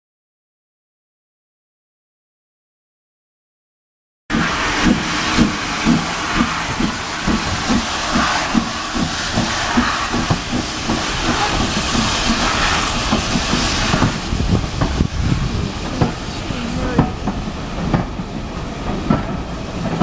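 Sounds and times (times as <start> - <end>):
steam hissing: 4.3 - 20.0
steam locomotive exhaust chuffs: 4.3 - 20.0.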